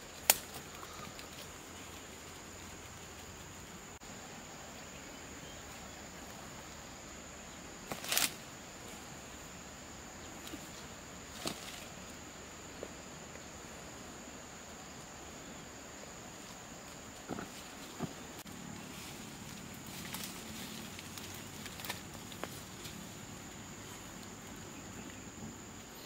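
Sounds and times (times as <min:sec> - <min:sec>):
twigs and dry leaves crackling: 0:00.0 - 0:04.0, 0:07.8 - 0:09.1, 0:10.3 - 0:12.2, 0:16.3 - 0:25.3.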